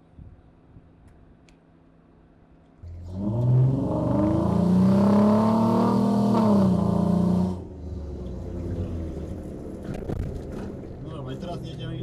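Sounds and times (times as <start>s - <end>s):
off-road engine revving: 2.8s - 10.8s.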